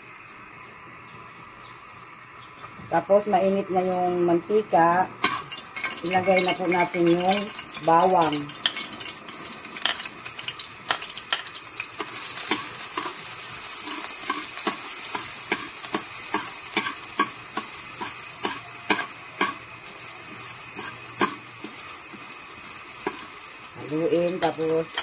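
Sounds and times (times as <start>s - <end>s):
garlic sizzling in hot oil: 4.5s - 25.0s
metal ladle scraping a wok: 8.6s - 19.6s, 20.3s - 22.3s, 23.0s - 23.4s.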